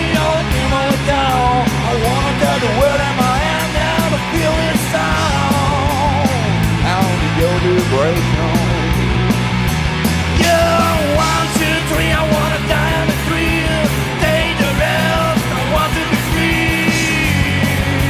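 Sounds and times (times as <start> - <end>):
man singing lead vocal: 0.0 - 9.2, 10.3 - 18.0
hard rock band playing live: 0.0 - 18.0.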